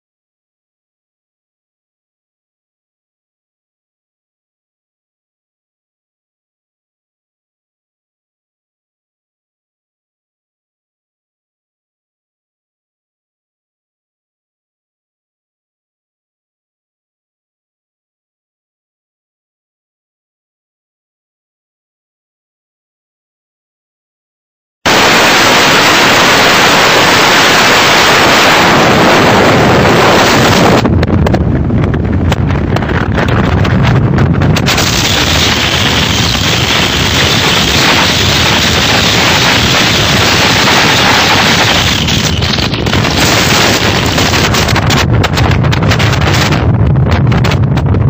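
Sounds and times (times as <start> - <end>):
loud static hiss: 24.9 - 31.0, 32.1 - 46.6
rushing noise with crackle: 24.9 - 48.0
sharp crackles: 32.2 - 46.5.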